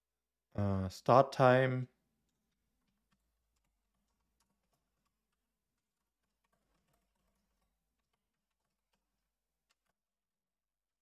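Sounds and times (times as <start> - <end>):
typing on computer keyboard: 2.2 - 10.0.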